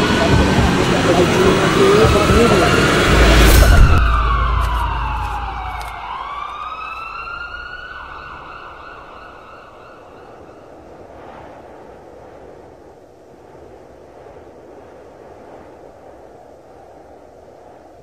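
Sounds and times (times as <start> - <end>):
sliding siren-like ringing tone: 0.0 - 10.8
deep boom hit: 2.0 - 6.2.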